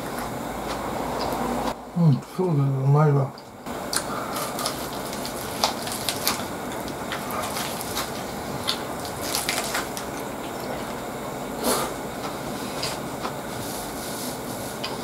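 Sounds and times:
chewing lettuce: 0:03.8 - 0:11.0
crisp crunches of lettuce: 0:03.9 - 0:10.8.

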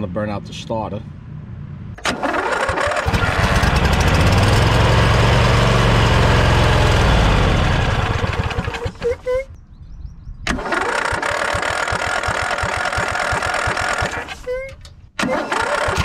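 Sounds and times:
mower engine running: 0:02.0 - 0:09.2, 0:10.5 - 0:14.4, 0:15.2 - 0:16.0
mower engine starter cranking: 0:02.0 - 0:09.2, 0:10.5 - 0:16.0.

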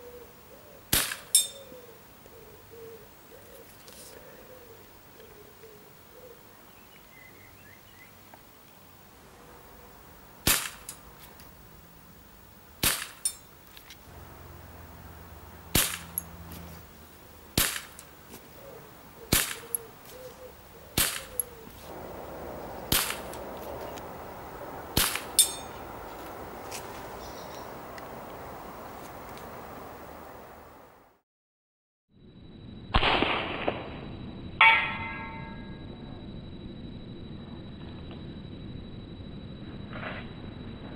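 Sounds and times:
air pistol shots popping: 0:00.9 - 0:01.4, 0:10.4 - 0:10.9, 0:12.8 - 0:13.3, 0:15.7 - 0:16.2, 0:17.6 - 0:18.1, 0:19.3 - 0:19.8, 0:21.0 - 0:21.5, 0:22.9 - 0:23.4, 0:25.0 - 0:25.4, 0:33.0 - 0:33.9.

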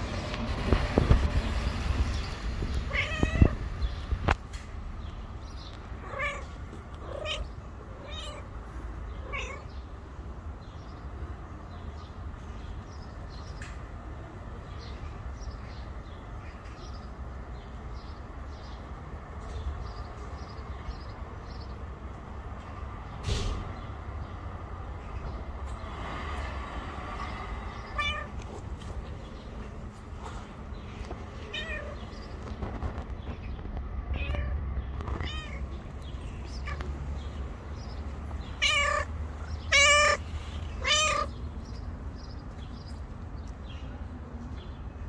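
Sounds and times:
cat meowing: 0:02.8 - 0:03.7, 0:06.0 - 0:08.6, 0:09.2 - 0:09.7, 0:27.8 - 0:28.4, 0:31.4 - 0:32.2, 0:34.1 - 0:35.7, 0:36.4 - 0:36.9, 0:38.5 - 0:41.4.

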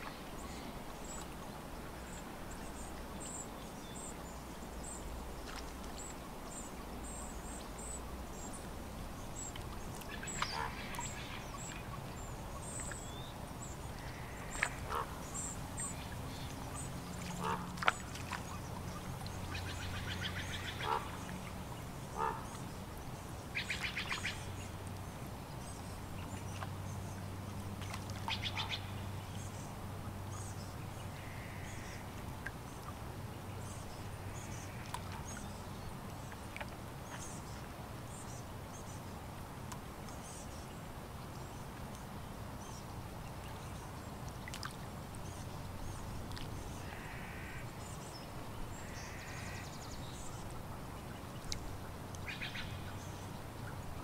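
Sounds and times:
calm lake water: 0:00.0 - 0:54.0
low steady hum: 0:00.0 - 0:54.0
water birds nasal calls: 0:09.4 - 0:24.7, 0:31.2 - 0:32.8, 0:44.5 - 0:50.6.

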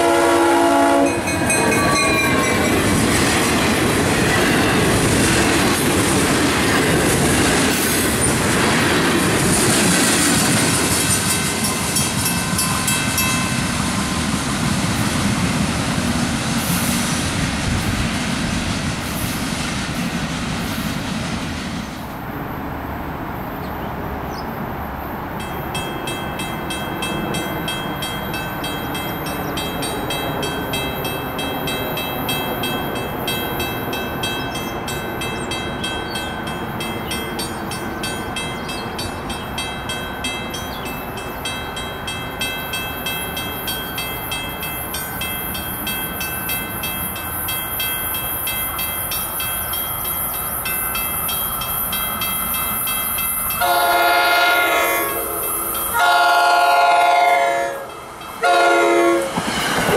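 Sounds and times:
railroad crossing bell ringing: 0:00.0 - 0:05.8, 0:10.3 - 0:14.0, 0:25.3 - 0:59.9.

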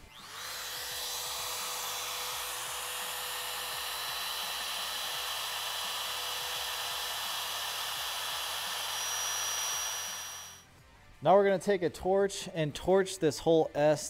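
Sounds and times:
wood router whining: 0:00.0 - 0:10.6.

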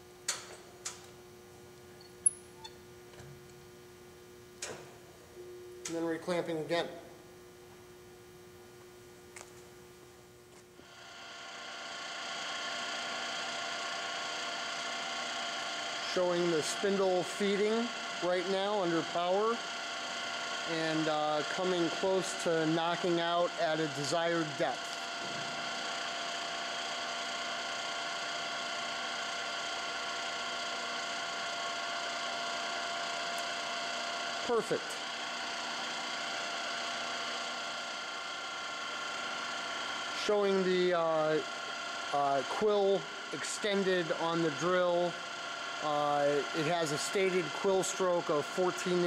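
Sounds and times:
low steady hum: 0:00.0 - 0:10.8
drill motor and gearbox humming: 0:10.8 - 0:49.0.

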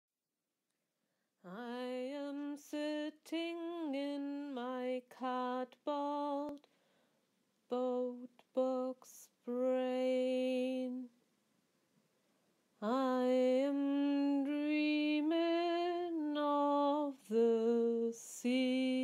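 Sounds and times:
woman singing unaccompanied: 0:01.4 - 0:06.7, 0:07.7 - 0:11.2, 0:12.8 - 0:19.0.

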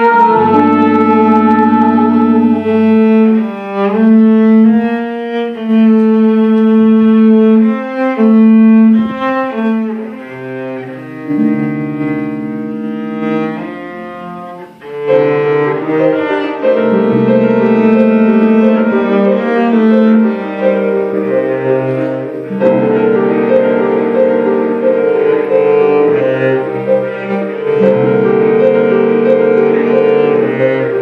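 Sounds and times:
guitar: 0:00.0 - 0:02.8
bowed cello: 0:00.0 - 0:31.0.

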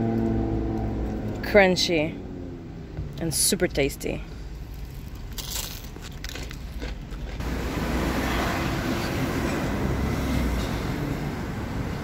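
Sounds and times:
street noise rumble: 0:00.0 - 0:12.0.

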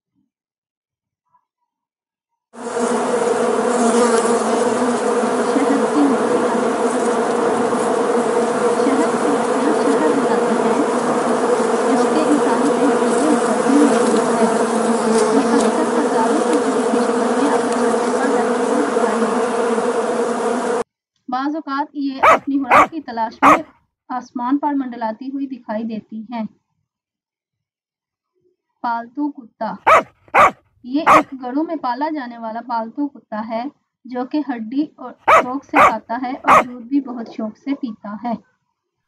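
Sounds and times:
bees buzzing: 0:02.6 - 0:20.8, 0:29.9 - 0:31.3, 0:35.3 - 0:36.7.

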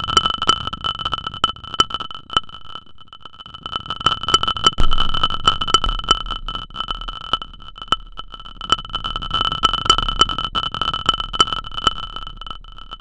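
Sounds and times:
low rumbling noise: 0:04.8 - 0:08.6.

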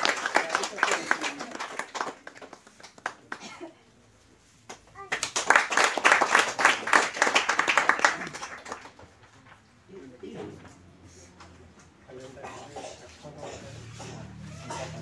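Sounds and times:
small group clapping: 0:00.0 - 0:03.7, 0:04.5 - 0:09.8.

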